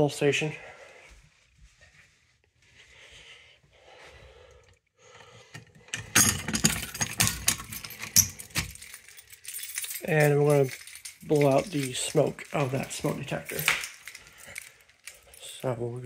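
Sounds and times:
metallic clicks and rattles of lock: 5.6s - 15.4s
keys jangling: 6.0s - 15.8s.

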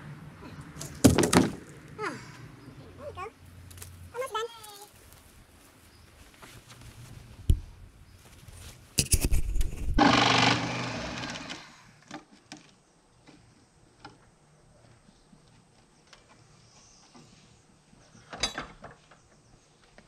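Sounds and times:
loud mechanical whir: 9.9s - 11.6s.

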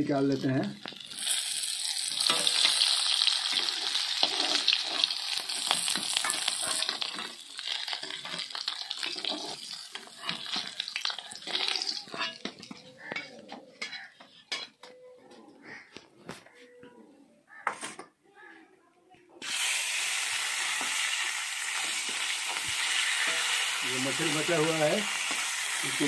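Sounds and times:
fish sizzling in hot oil: 0.0s - 13.1s, 19.4s - 26.0s
metal spatula scraping and clicking: 3.5s - 7.3s, 7.9s - 14.9s.

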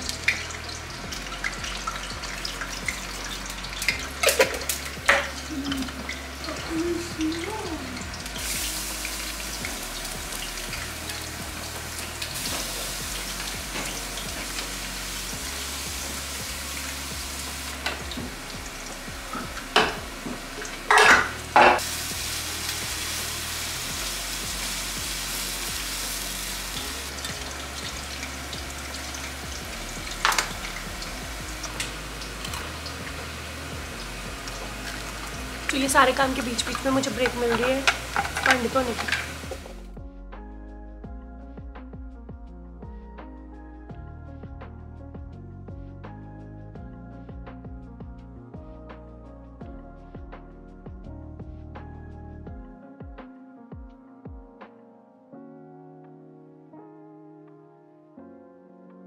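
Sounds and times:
hot oil sizzling: 0.0s - 39.9s
soft background music: 0.0s - 59.0s
spoon clinking on metal pans: 20.9s - 21.8s, 36.0s - 39.6s.

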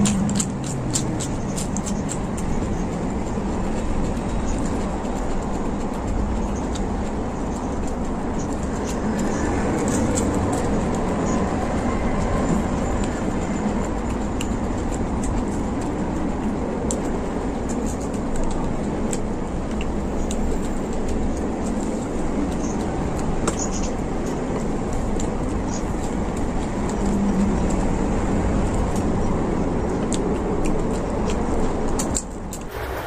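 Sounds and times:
chewing clicks and smacks: 0.0s - 32.8s
low rumble: 32.6s - 33.0s.

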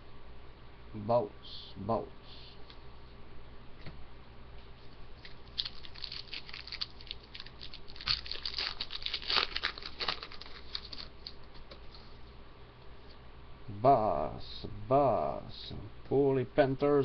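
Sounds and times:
foil wrapper crinkling: 5.2s - 11.7s.

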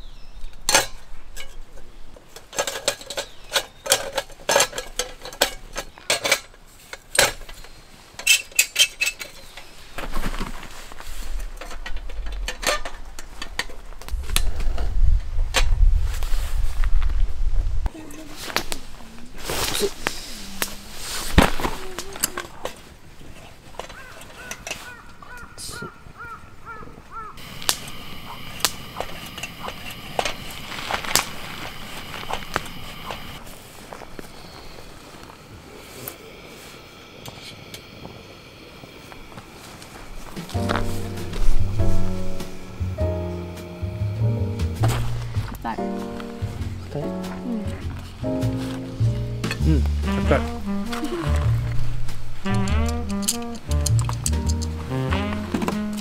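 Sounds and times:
pressure lantern hissing: 27.4s - 45.5s
metal clinks and rattles: 52.4s - 54.8s.

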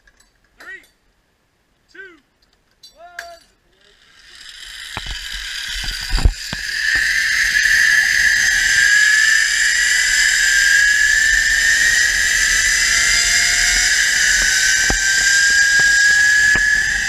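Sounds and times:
zipline pulleys whining on cable: 3.8s - 17.0s
wind rumble on microphone: 5.7s - 17.0s.

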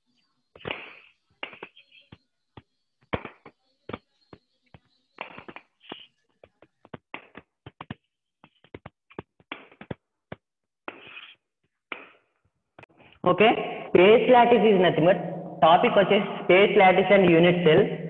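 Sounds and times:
chalk scraping on chalkboard: 10.9s - 11.4s
chalk tapping and scratching: 10.9s - 11.4s.

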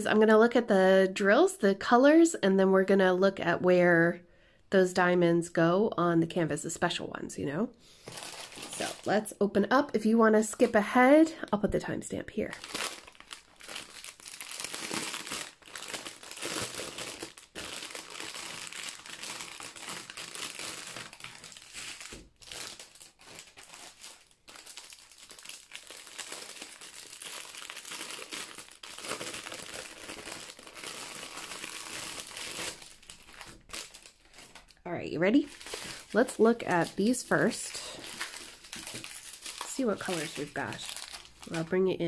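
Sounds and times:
plastic packaging crinkling: 8.0s - 9.3s, 12.3s - 41.8s.

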